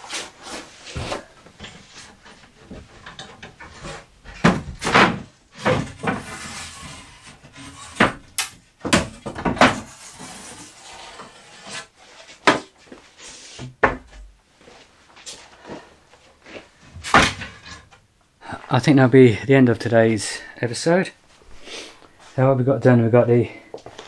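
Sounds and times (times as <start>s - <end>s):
wooden boards knocking: 8.8s - 9.9s.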